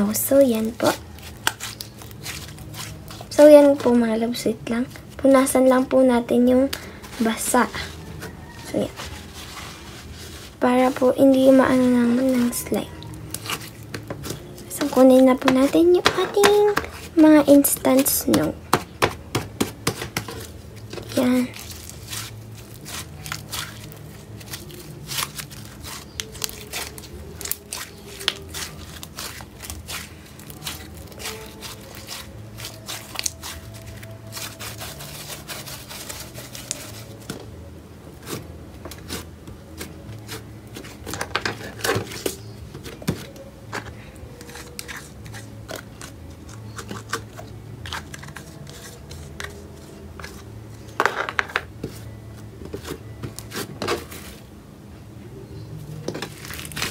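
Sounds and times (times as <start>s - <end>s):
slime crackling and crunching: 0.0s - 5.6s, 6.7s - 18.5s, 19.8s - 37.3s, 56.1s - 56.9s
low steady hum: 0.0s - 56.9s.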